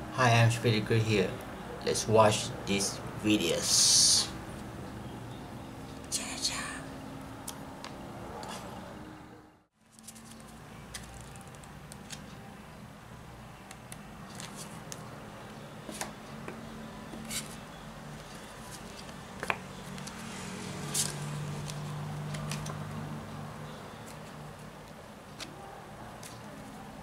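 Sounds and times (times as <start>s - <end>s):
playing cards snapping: 20.9s - 22.8s.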